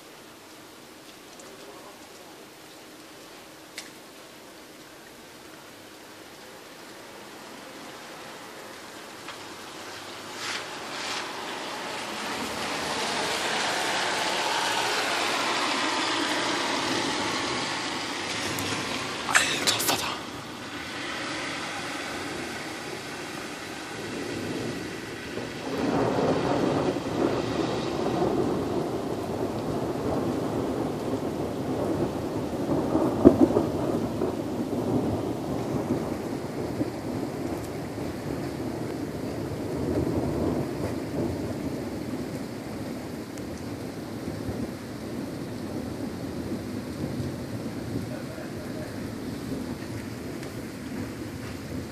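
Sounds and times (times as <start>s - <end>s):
rain: 0.0s - 51.9s
crackles: 0.4s - 5.6s, 8.7s - 14.2s
car passing on wet road: 5.3s - 51.9s
thunder rumbling: 8.3s - 51.9s
sharp thunder crack: 23.9s - 37.5s.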